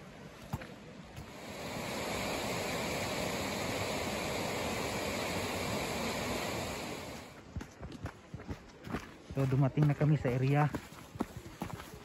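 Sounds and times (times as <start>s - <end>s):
water rushing: 0.0s - 7.4s.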